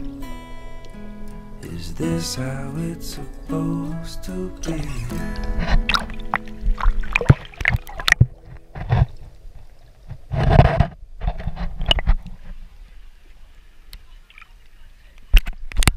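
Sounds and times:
water splashes: 4.6 - 10.6, 11.8 - 15.9
rush of water: 4.8 - 10.6
water sloshing and gurgling: 5.3 - 13.4.

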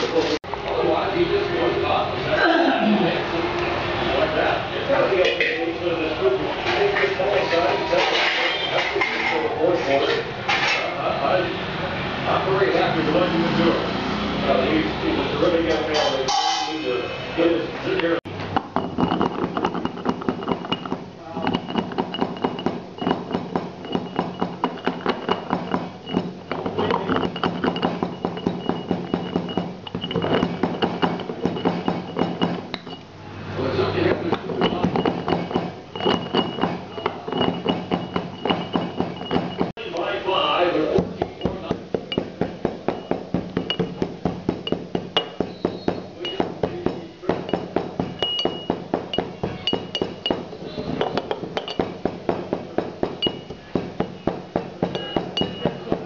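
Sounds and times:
pestle pounding in brass mortar: 18.3 - 33.0, 34.1 - 39.8, 40.8 - 56.0.

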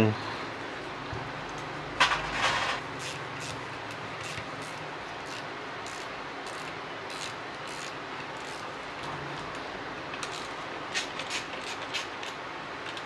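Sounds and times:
steady background hum: 0.0 - 13.0
plastic parts clattering: 2.0 - 2.8.

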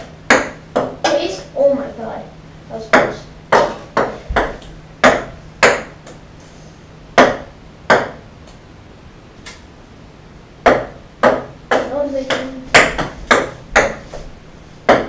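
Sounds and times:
ping-pong ball bouncing on wood: 0.3 - 1.1, 2.9 - 6.2, 7.2 - 8.2, 10.6 - 14.1.

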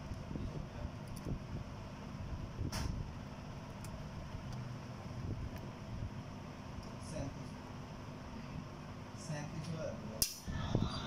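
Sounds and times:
low steady background hum: 0.0 - 11.0.

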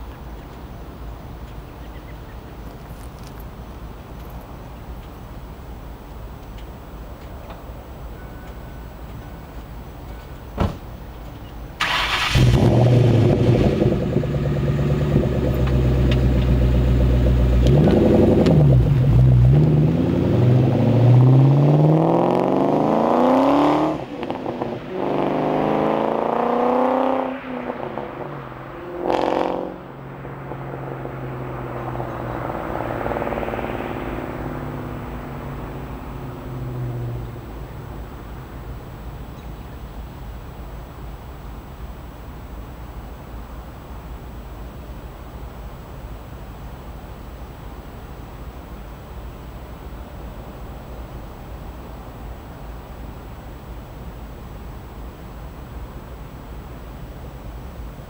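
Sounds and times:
car engine accelerating: 11.8 - 38.8.

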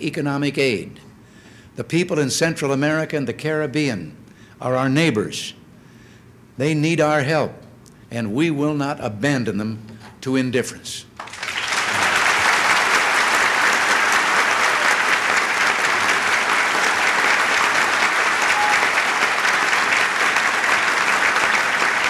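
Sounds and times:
audience applauding: 11.2 - 22.0.

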